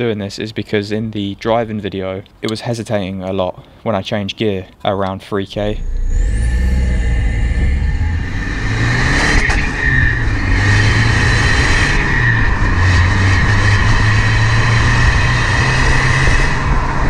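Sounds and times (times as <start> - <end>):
diesel car engine pulling: 5.6 - 17.0.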